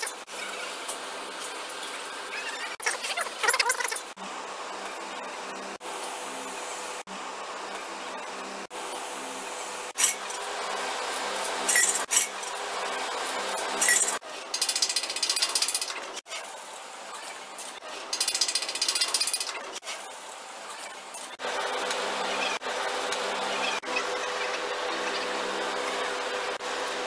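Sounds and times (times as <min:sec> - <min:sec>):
fast ratchet-like clicks: 0:13.8 - 0:16.2, 0:18.1 - 0:19.8
mechanical clicking and rattling: 0:13.8 - 0:16.2, 0:18.1 - 0:19.8.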